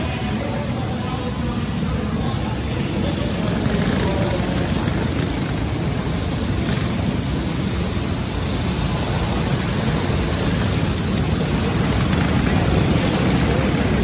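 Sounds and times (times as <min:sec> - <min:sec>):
go-kart engines driving past: 0:00.0 - 0:14.0.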